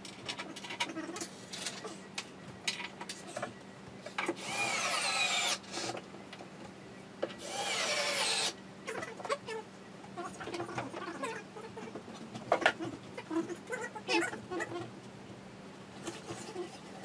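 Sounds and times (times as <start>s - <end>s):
power drill whining: 4.4s - 5.9s, 7.4s - 8.6s.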